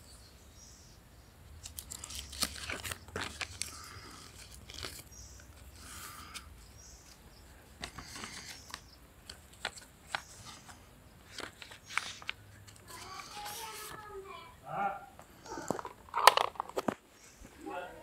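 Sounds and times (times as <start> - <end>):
paper being folded and creased: 1.6 - 7.2, 7.8 - 14.2.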